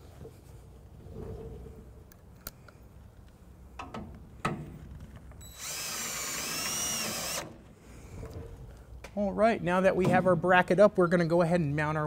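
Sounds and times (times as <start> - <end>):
power drill whining: 5.4 - 7.6.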